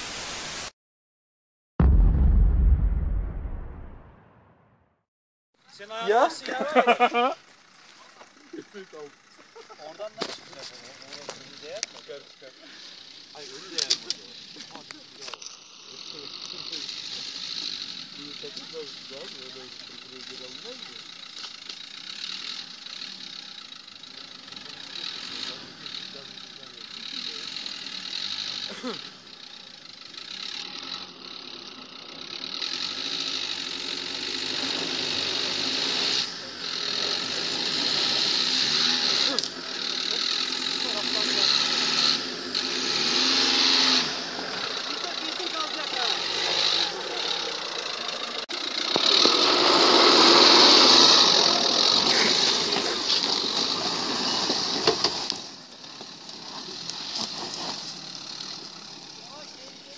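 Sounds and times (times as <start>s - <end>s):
loud even rushing noise: 1.8s - 4.9s
tyres on loose dirt: 6.1s - 59.9s
car engine at low revs: 6.4s - 59.9s.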